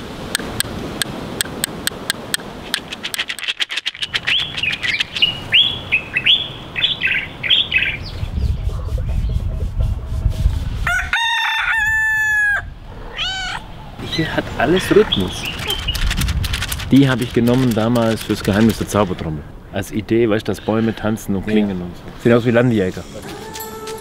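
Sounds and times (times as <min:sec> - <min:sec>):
seashells clicking together: 0:00.4 - 0:05.4, 0:15.4 - 0:19.0
bird chirps: 0:04.0 - 0:09.4, 0:13.2 - 0:16.2
rooster crowing: 0:10.8 - 0:13.6, 0:23.2 - 0:24.0.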